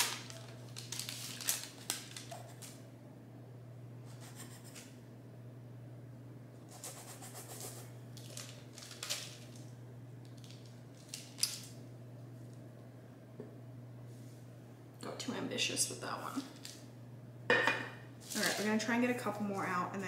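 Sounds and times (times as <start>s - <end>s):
paper crinkling: 0.0s - 2.8s, 7.5s - 11.8s, 18.2s - 18.8s
low steady hum: 0.0s - 20.0s.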